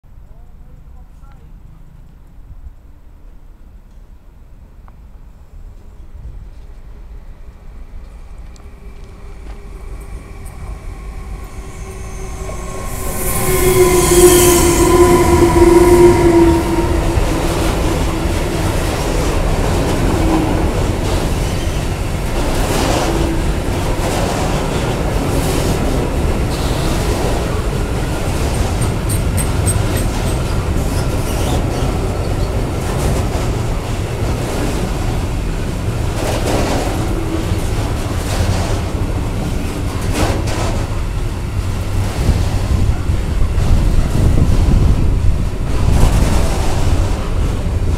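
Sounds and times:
train wheels rumbling: 0:01.6 - 0:47.9
electric locomotive humming whine: 0:05.2 - 0:47.9
wheels clacking over rail joints: 0:16.6 - 0:47.9.

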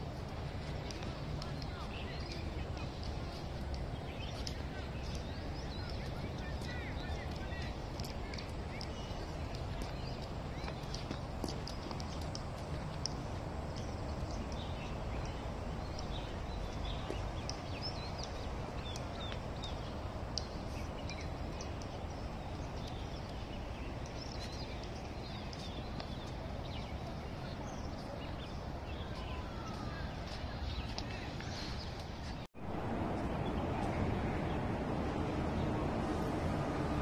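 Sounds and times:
footsteps on pavement: 0:00.0 - 0:34.8
small birds chirping: 0:00.1 - 0:32.5
low rumble: 0:32.5 - 0:37.0.

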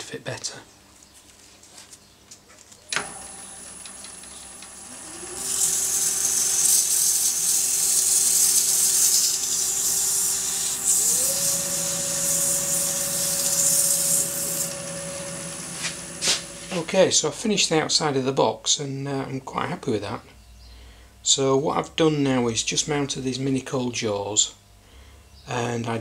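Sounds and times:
lathe motor whine: 0:02.9 - 0:17.2
sandpaper hissing on spinning wood: 0:04.8 - 0:17.0.

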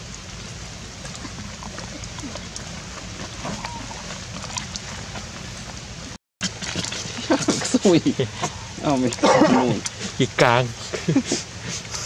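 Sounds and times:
background hiss: 0:07.1 - 0:12.0.

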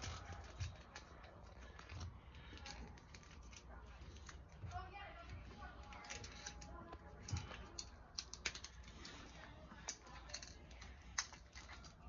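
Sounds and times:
plastic clicking and scraping: 0:00.0 - 0:12.0.

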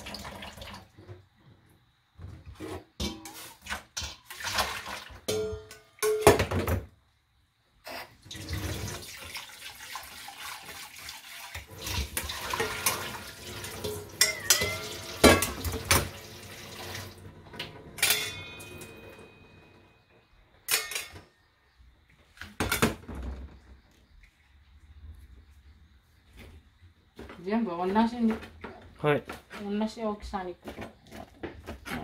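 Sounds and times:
strainer clinking against pot: 0:14.2 - 0:15.7, 0:18.0 - 0:19.3.

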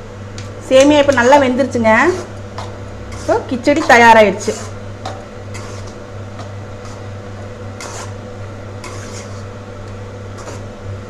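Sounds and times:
ladle scraping a steel pan: 0:05.5 - 0:06.0, 0:07.8 - 0:08.2, 0:08.8 - 0:09.5.

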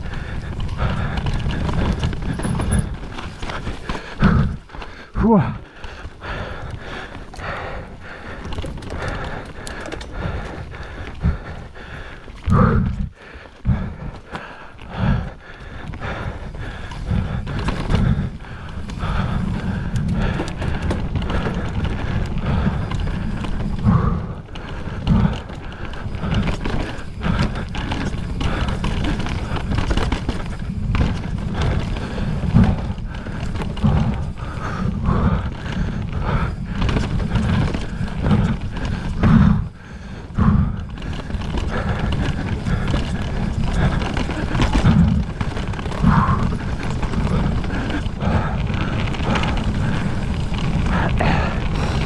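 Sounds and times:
tyres rumbling on dirt and rock: 0:00.0 - 0:52.0
bike frame rattling knocks: 0:01.6 - 0:03.5.

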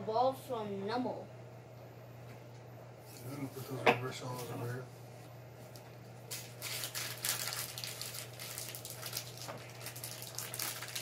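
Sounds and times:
steady low hum: 0:00.0 - 0:11.0
cards and foil wrappers crinkling: 0:06.3 - 0:11.0.

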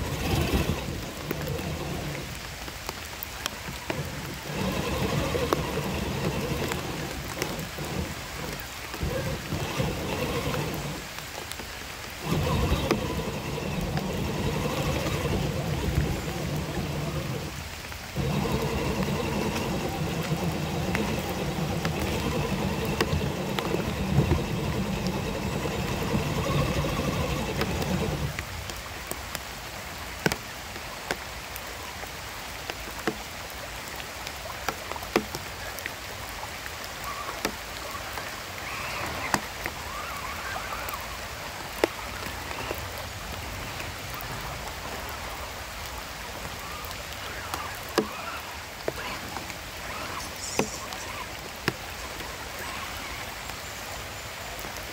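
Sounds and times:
rc car motor whining: 0:00.0 - 0:02.3, 0:03.8 - 0:11.2, 0:12.2 - 0:28.4
running water: 0:00.0 - 0:54.9.

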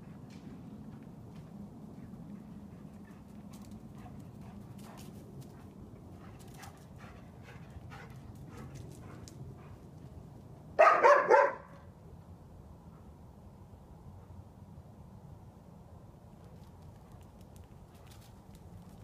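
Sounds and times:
dog barking: 0:10.8 - 0:11.8.

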